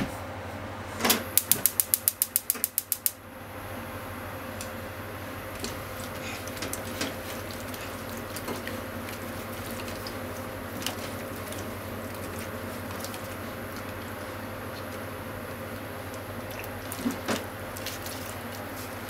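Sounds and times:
chopsticks clicking against pan: 1.4 - 3.2.

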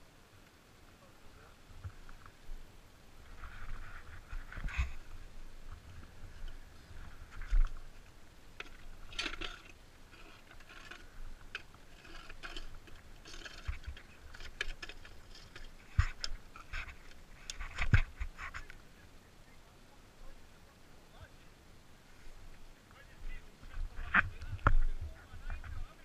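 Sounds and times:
metal stand clinking and scraping: 8.6 - 18.6.

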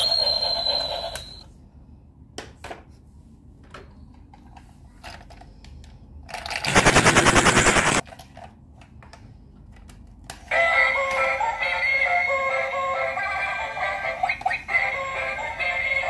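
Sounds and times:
loud rapid rattle: 6.5 - 8.0.

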